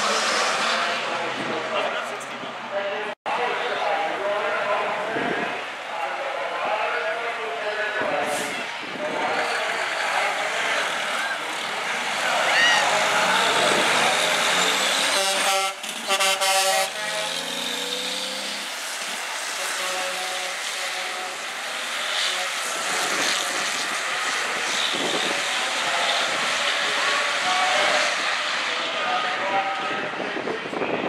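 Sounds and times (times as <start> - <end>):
diesel truck engines at full throttle: 0.0 - 31.0
truck air horn: 14.5 - 17.8, 19.6 - 21.5.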